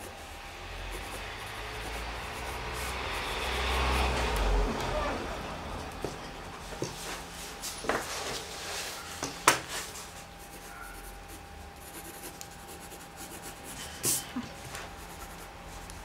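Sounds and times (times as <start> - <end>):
pencil scratching on paper: 0.8 - 4.3, 10.4 - 15.5.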